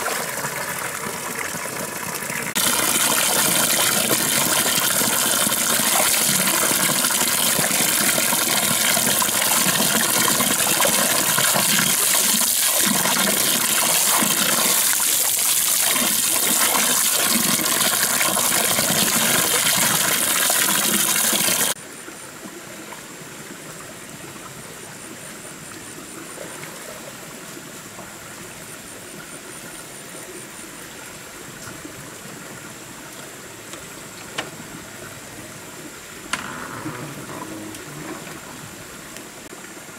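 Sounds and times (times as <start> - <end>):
water pouring and splashing: 0.0 - 21.8.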